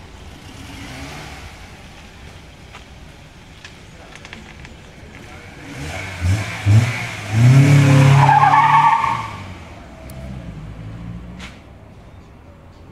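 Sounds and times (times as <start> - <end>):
car engine revving and accelerating: 0.3 - 2.0, 5.2 - 11.6
tyre squeal: 7.5 - 9.4.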